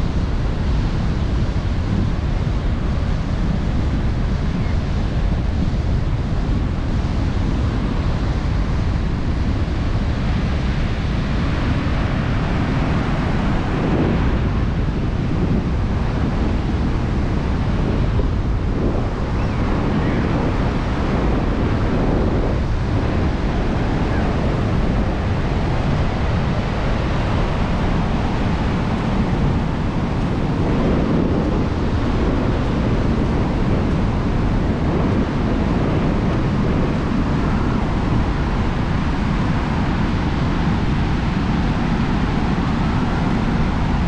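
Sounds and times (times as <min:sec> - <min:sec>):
surf washing onto beach: 0:00.0 - 0:44.0
wind buffeting microphone: 0:00.0 - 0:44.0.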